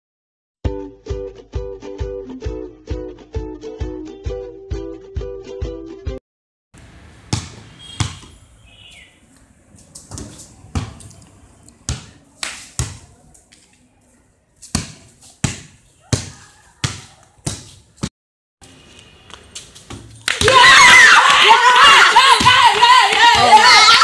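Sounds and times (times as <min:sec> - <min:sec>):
basketball bouncing on pavement: 0:06.8 - 0:08.6, 0:09.8 - 0:11.1, 0:11.8 - 0:13.2, 0:14.6 - 0:18.1, 0:19.2 - 0:20.6, 0:22.3 - 0:22.6.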